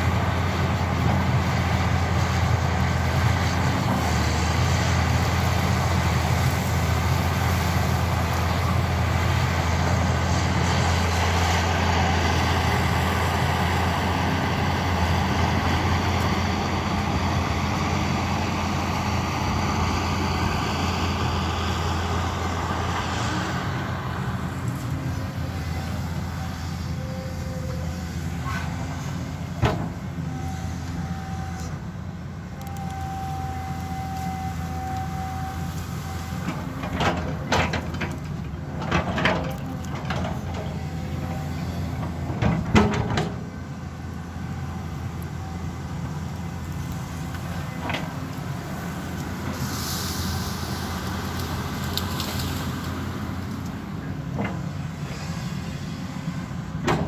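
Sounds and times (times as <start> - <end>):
excavator diesel engine: 0.0 - 57.0
hiss: 49.4 - 53.2.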